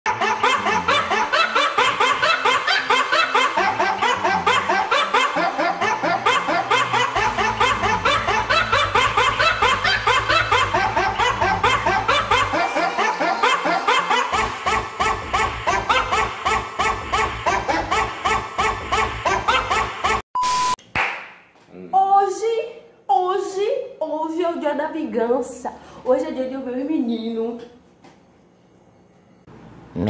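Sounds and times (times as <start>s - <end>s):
rapid laughter: 0.1s - 20.2s.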